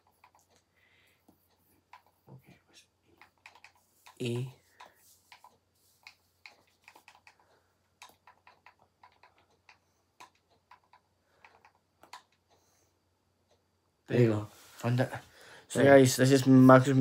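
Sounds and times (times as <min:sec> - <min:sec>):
faint phone keyboard typing clicks: 0:00.0 - 0:02.5, 0:03.1 - 0:12.8.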